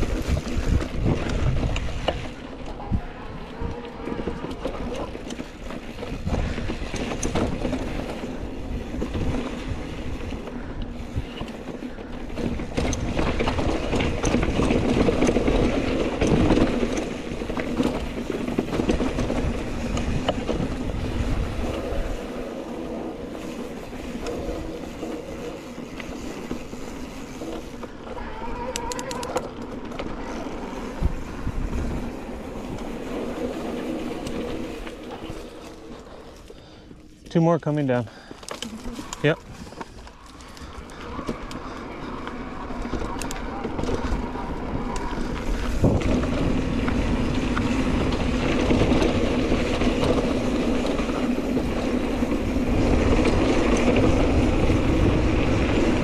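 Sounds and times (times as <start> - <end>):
bike rattling over bumps: 0.0 - 56.0
bike tyres crunching over dirt: 0.0 - 56.0.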